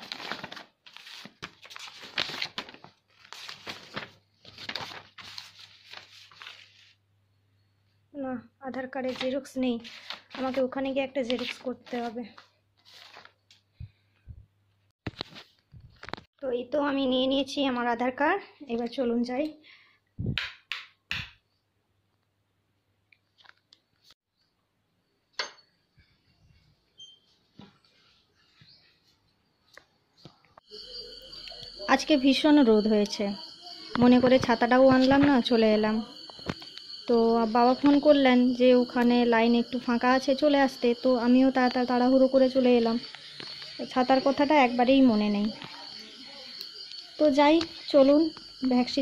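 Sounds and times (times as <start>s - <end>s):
paper rustling and flapping: 0.0s - 7.0s, 9.0s - 13.7s, 15.0s - 16.3s.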